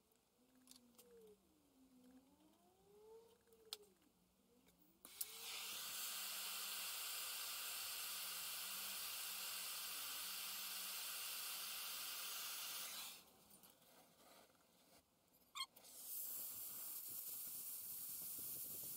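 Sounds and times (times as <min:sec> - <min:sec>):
gas torch hissing: 0:05.1 - 0:13.2, 0:16.0 - 0:18.9.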